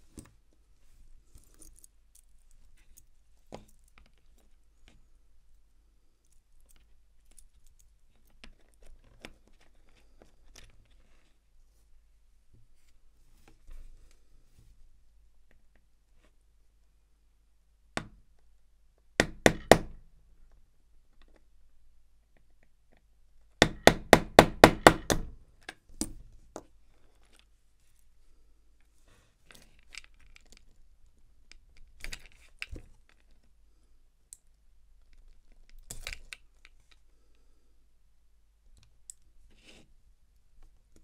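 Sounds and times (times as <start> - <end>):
faint clicks and handling noises: 0.0 - 11.5, 28.8 - 33.6, 34.2 - 37.5.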